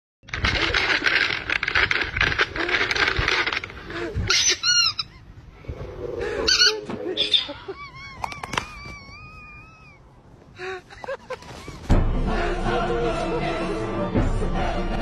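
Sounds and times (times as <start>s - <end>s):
plastic bag crinkling: 0.3s - 3.9s
squeaky toy squeals: 4.3s - 5.3s.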